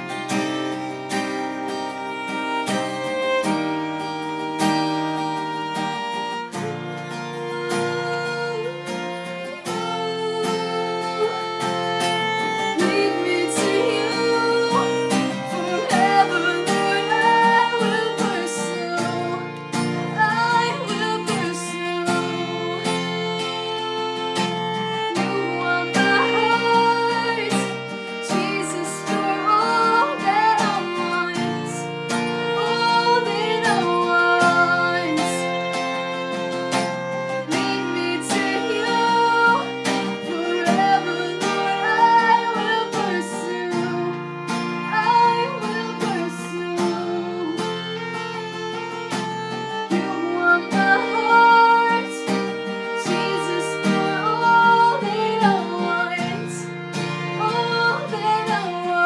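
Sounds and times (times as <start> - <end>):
acoustic guitar strumming chords: 0.0 - 59.0
violin melody: 0.0 - 59.0.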